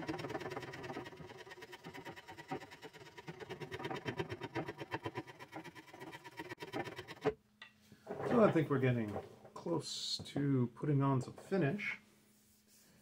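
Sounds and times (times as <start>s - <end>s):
spokeshave scraping wood: 0.0s - 7.4s, 8.0s - 9.6s.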